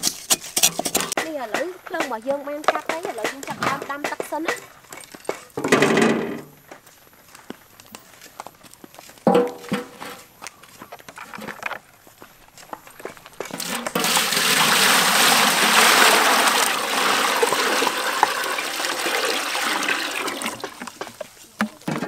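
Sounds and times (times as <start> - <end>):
water poured into a metal pot: 13.6 - 20.9.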